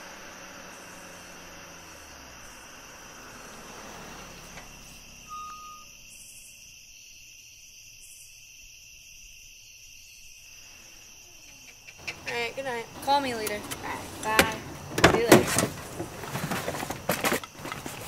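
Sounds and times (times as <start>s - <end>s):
car running low: 0.0s - 6.5s, 12.0s - 18.0s
crickets chirping: 0.0s - 18.0s
short beep: 5.2s - 6.0s.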